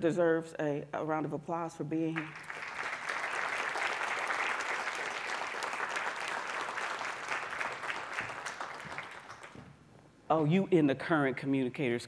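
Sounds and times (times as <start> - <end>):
audience applauding: 2.2 - 9.6.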